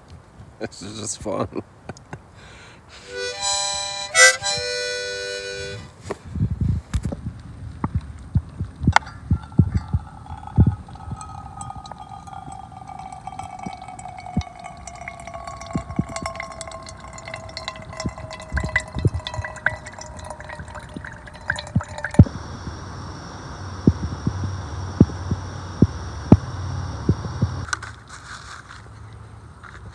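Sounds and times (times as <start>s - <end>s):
water trickling into metal pot: 8.9s - 22.3s
steady hiss: 19.8s - 27.7s.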